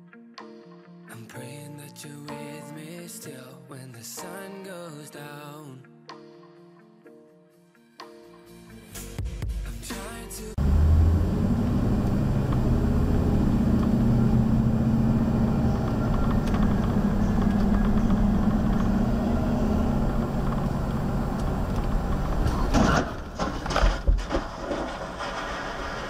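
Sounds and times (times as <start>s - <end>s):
car interior driving drone: 10.6s - 23.8s
car crash bangs: 21.6s - 26.0s.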